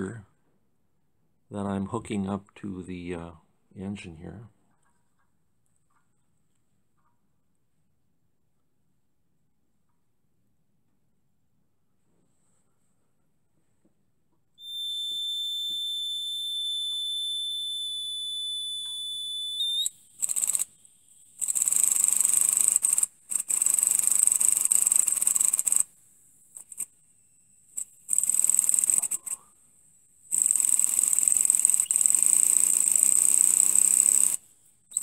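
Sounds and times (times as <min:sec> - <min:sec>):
high whistle of air: 0:14.6 - 0:20.6
steam engine hissing exhaust: 0:14.7 - 0:25.9.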